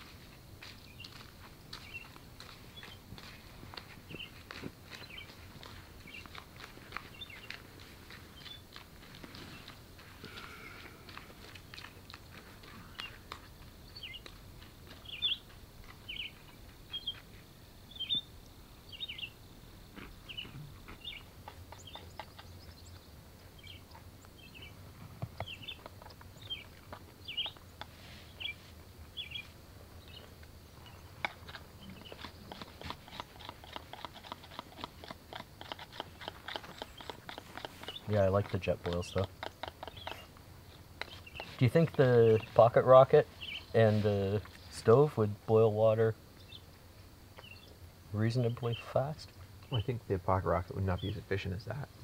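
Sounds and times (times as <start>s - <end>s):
small animal chirping: 20.2s - 24.7s, 25.4s - 28.6s, 30.1s - 41.6s.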